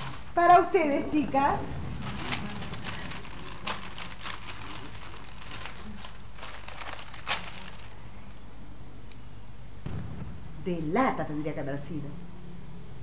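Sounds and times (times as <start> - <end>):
wrapping paper rustling: 0.0 - 8.1.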